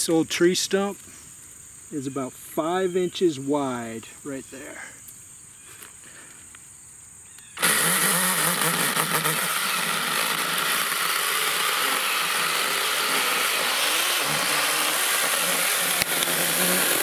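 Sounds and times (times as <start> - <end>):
mini chainsaw cutting stump: 7.4 - 17.0.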